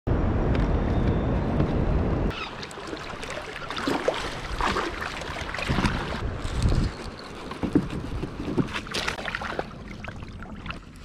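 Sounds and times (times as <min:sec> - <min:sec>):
wind rumbling on microphone: 0:00.1 - 0:02.5, 0:05.5 - 0:08.9
small splashes: 0:02.3 - 0:06.2, 0:08.1 - 0:11.0
river water rippling against hull: 0:02.3 - 0:11.0.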